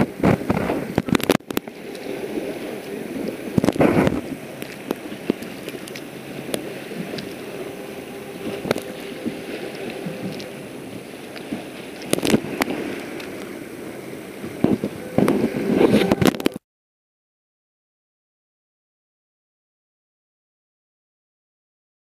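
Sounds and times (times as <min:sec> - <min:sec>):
water lapping: 0:00.0 - 0:16.6
wind buffeting microphone: 0:00.0 - 0:16.6.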